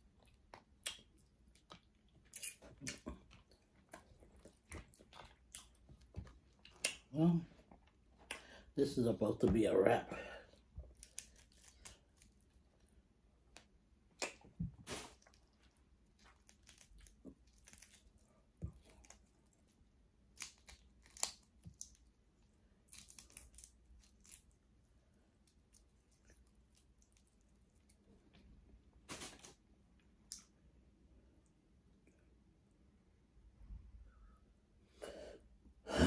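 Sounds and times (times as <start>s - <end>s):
seafood shells cracking by hand: 10.9s - 12.4s, 20.3s - 22.1s, 22.9s - 24.5s.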